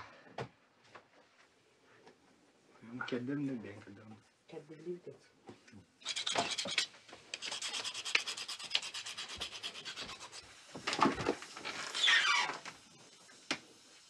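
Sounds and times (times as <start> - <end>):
knife scraping on whetstone: 6.0 - 10.5.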